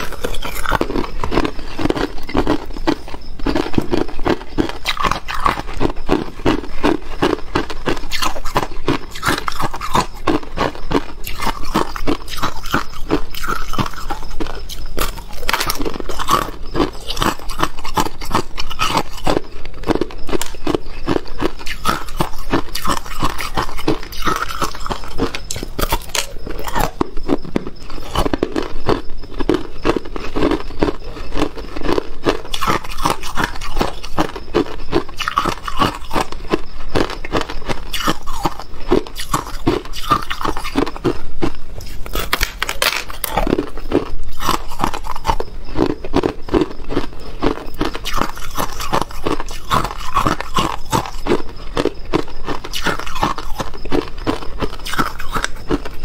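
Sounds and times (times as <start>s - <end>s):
person crunching ice: 0.0s - 56.0s.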